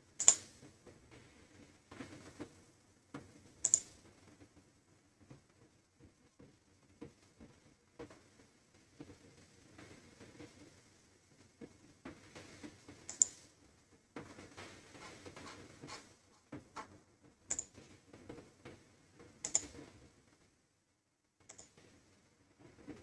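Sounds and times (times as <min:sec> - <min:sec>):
keyboard and mouse clicking: 0:00.2 - 0:00.4, 0:03.6 - 0:03.9, 0:13.1 - 0:13.4, 0:17.5 - 0:17.7, 0:19.4 - 0:19.8, 0:21.5 - 0:21.8.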